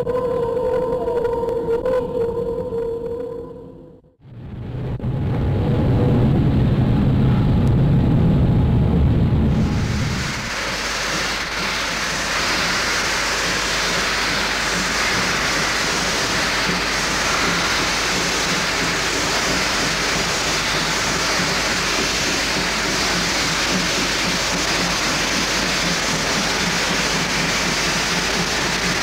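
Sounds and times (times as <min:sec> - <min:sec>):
steam locomotive hissing: 0:09.5 - 0:29.0.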